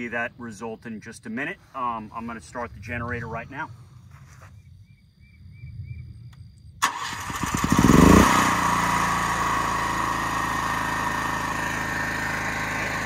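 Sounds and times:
generator engine starting: 6.8 - 13.0.

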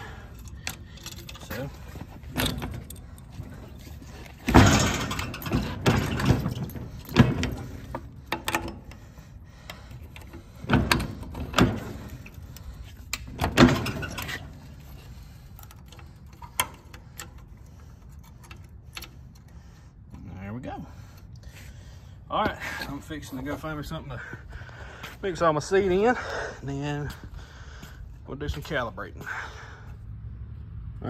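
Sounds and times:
metal clanks and rattles: 0.0 - 20.3.

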